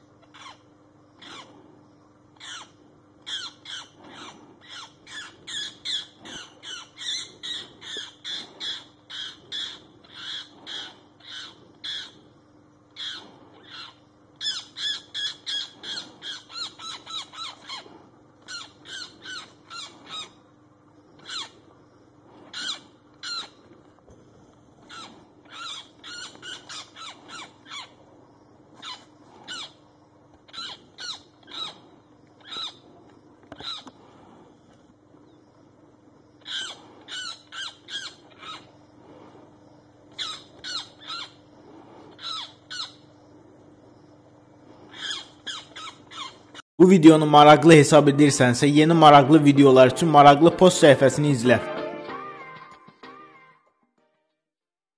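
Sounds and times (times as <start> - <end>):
magpie harsh rapid calls: 3.3 - 12.2, 13.0 - 17.9, 30.5 - 31.8, 36.4 - 38.7.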